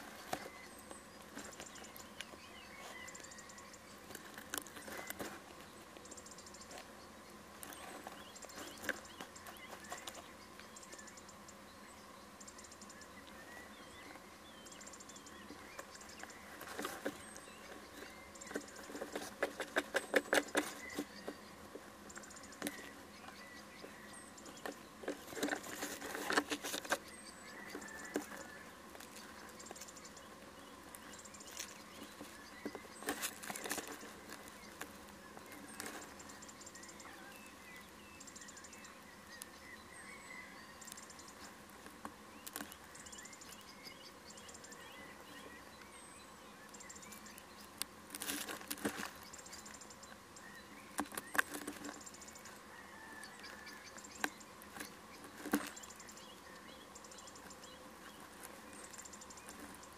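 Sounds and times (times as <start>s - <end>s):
owl scratching and tapping in nest box: 0.0s - 6.9s, 7.5s - 11.1s, 14.9s - 39.6s, 40.3s - 44.6s, 46.9s - 59.9s.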